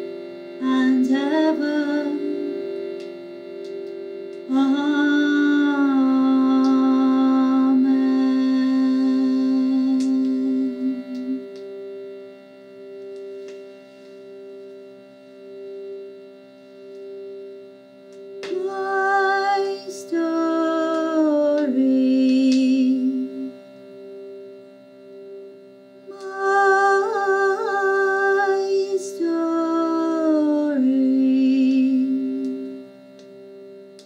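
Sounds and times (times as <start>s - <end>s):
woman singing wordless melody: 0.0s - 12.3s, 18.3s - 24.5s, 26.0s - 34.0s
steady held drone: 0.0s - 34.0s.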